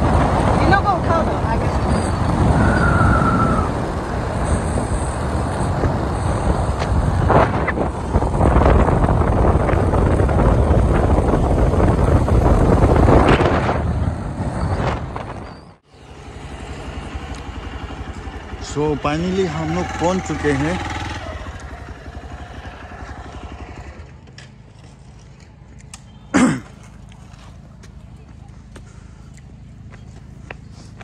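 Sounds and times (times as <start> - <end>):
wind rushing over microphone: 0.0 - 15.8
motorcycle engine: 0.0 - 30.9
road noise: 0.0 - 31.0.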